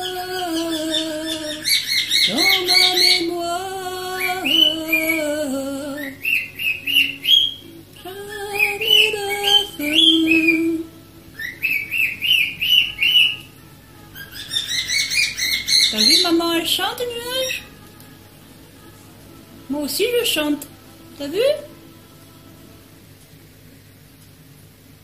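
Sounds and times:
cockatiel whistling and chirping: 0.9s - 3.2s, 6.0s - 7.7s, 11.4s - 13.5s, 14.1s - 16.3s
tune of long held notes: 2.3s - 23.8s.

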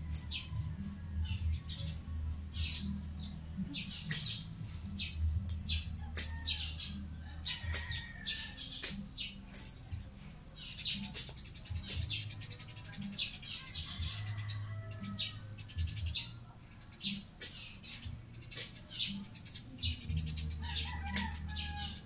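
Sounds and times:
birds chirping: 0.0s - 22.0s
blade swishing through grass: 4.0s - 4.5s, 6.2s - 6.6s, 8.8s - 9.8s, 11.0s - 12.3s.

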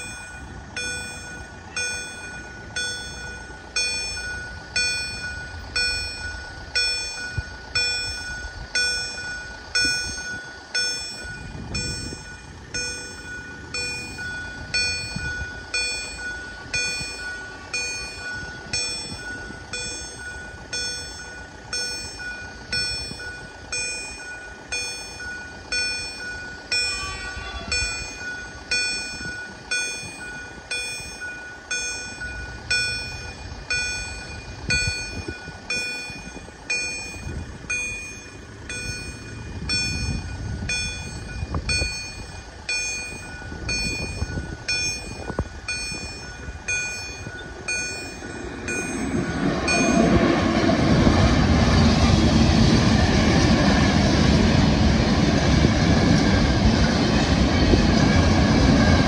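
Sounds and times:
level-crossing bell ringing: 0.0s - 59.0s
low rumble: 0.0s - 59.0s
train approaching: 0.0s - 59.0s.

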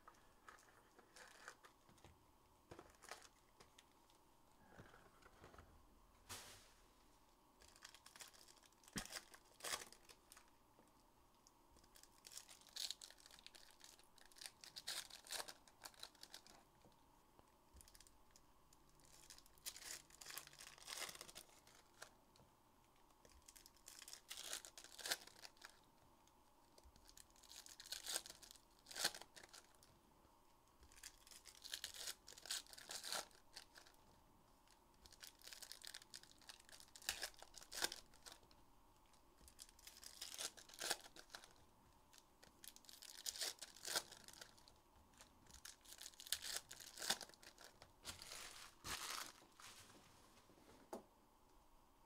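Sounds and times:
card packaging tearing and crinkling: 7.6s - 10.4s, 12.0s - 16.6s, 19.1s - 22.1s, 23.5s - 25.8s, 27.1s - 29.8s, 30.9s - 34.0s, 35.0s - 38.4s, 39.5s - 41.6s, 42.4s - 44.7s, 45.5s - 49.5s.

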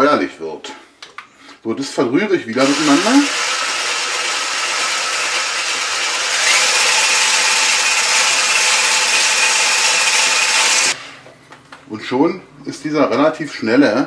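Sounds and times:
hand blender whisking in a bowl: 2.6s - 11.0s.

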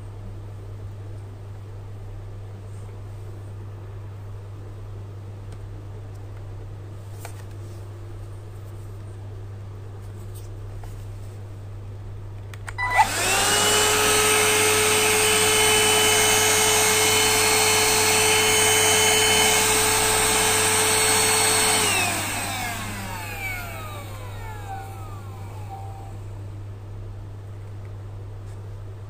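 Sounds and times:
handheld vacuum motor whine: 12.8s - 26.7s.

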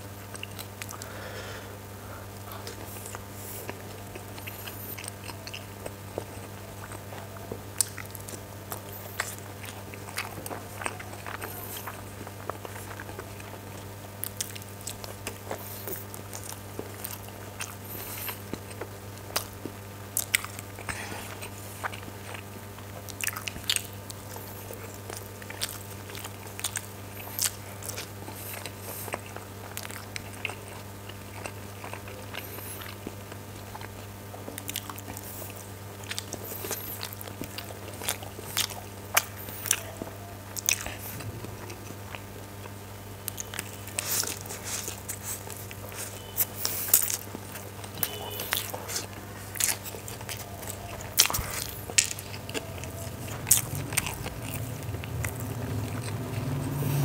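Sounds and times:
chewing and biting food: 0.0s - 1.2s, 2.1s - 57.0s
low hum: 40.0s - 44.0s, 49.3s - 57.0s.

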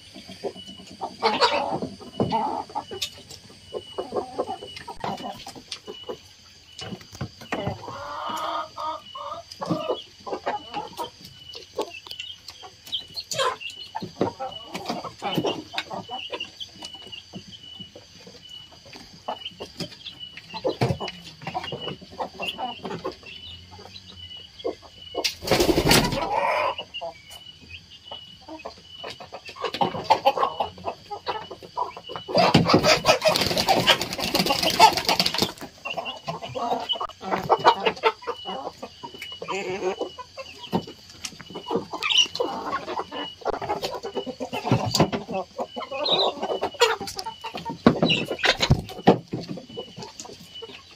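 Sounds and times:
chickens pecking at feed: 0.0s - 26.8s, 28.5s - 50.9s
chickens clucking: 0.0s - 50.9s
noisy flock outburst: 1.0s - 3.0s, 25.2s - 27.0s, 29.6s - 40.5s.

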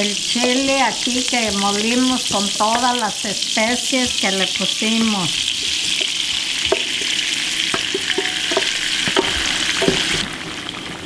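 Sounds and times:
chile paste sizzling in pan: 0.0s - 11.0s
wooden spoon scraping and knocking: 5.5s - 10.2s.

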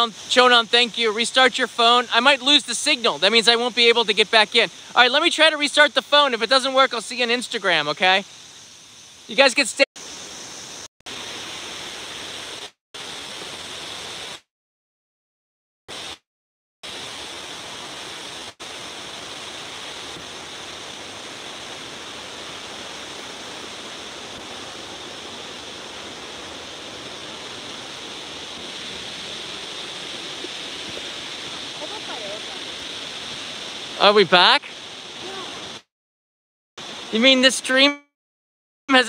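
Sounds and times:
waterfall rushing: 0.0s - 8.0s, 16.9s - 35.8s, 36.8s - 37.8s.

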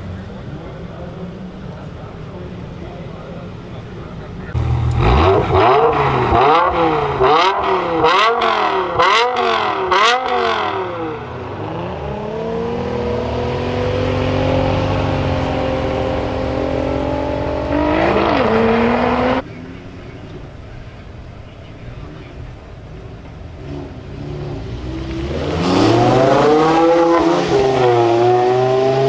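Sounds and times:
background noise: 0.0s - 29.0s
exhaust crackles: 0.0s - 29.0s
car engine revving: 4.2s - 19.5s, 23.5s - 29.0s.

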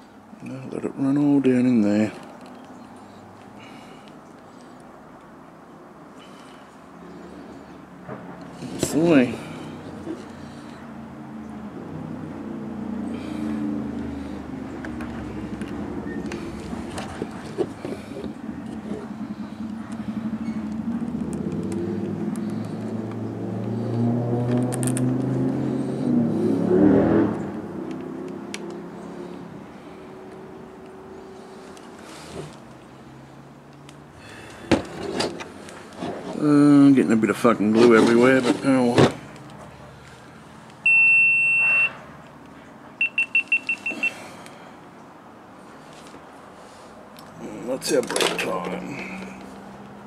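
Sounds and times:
vehicle engine humming: 0.0s - 50.0s
electronic timer beeping: 40.8s - 42.0s, 43.0s - 44.2s.

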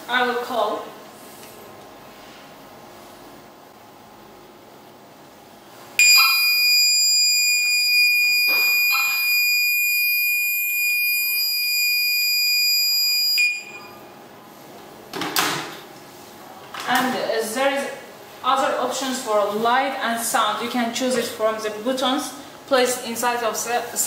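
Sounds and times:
high-pitched buzzer tone: 6.0s - 14.0s.

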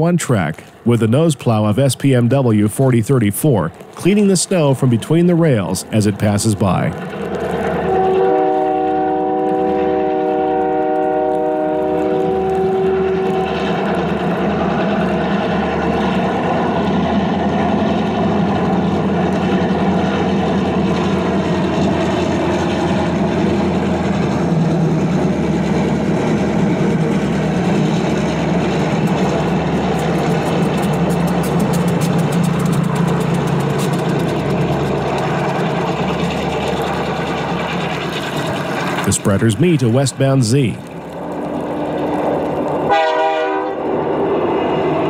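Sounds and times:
train rumbling past: 0.0s - 45.0s
train horn chord: 7.9s - 13.6s, 42.9s - 43.9s.

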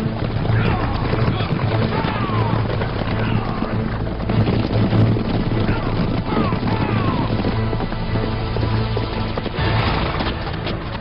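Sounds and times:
film score music: 0.0s - 11.0s
horse hooves pounding: 0.0s - 11.0s
riders shouting: 0.3s - 4.0s, 5.5s - 7.7s.

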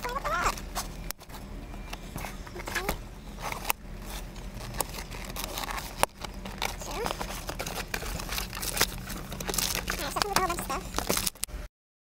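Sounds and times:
plastic packaging crinkling and clicking: 2.6s - 11.6s.

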